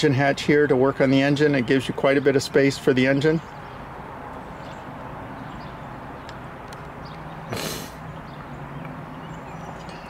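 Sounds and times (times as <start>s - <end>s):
short hiss: 7.5s - 8.0s.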